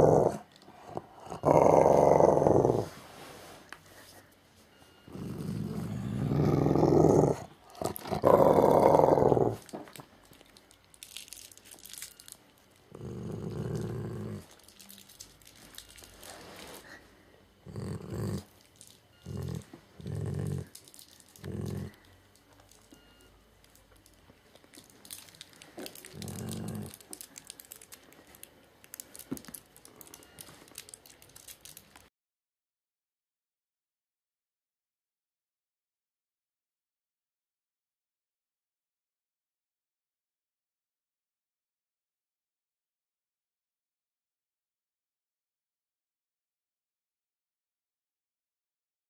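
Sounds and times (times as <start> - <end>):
dog growling: 0.0 - 3.0, 5.1 - 9.8, 12.9 - 14.6, 17.6 - 18.6, 19.2 - 22.1, 25.7 - 27.4.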